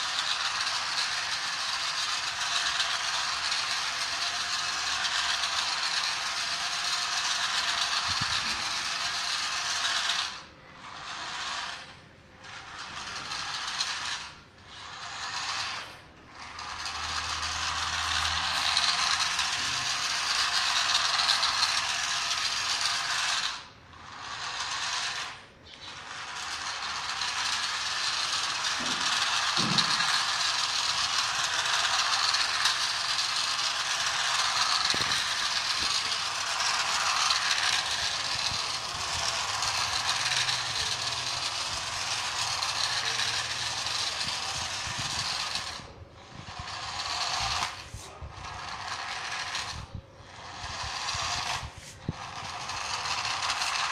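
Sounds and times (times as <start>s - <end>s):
toy car motor whirring: 0.0s - 53.9s.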